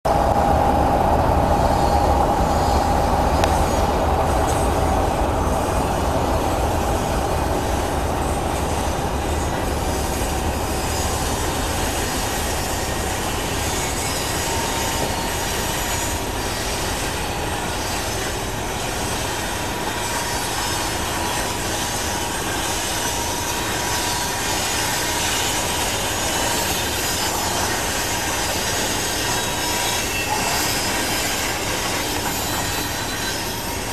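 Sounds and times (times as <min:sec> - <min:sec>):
freight cars rumbling: 0:00.0 - 0:33.9
train brakes squealing: 0:00.1 - 0:33.9.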